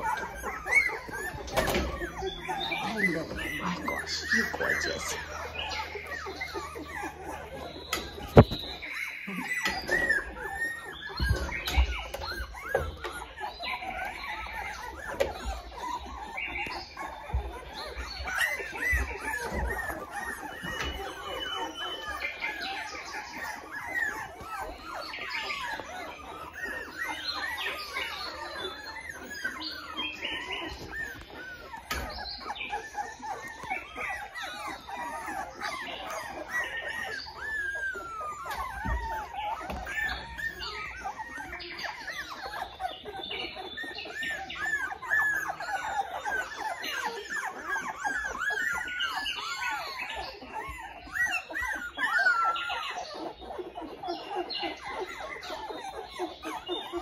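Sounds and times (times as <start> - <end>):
puppies whining and squealing: 0.0 - 57.0.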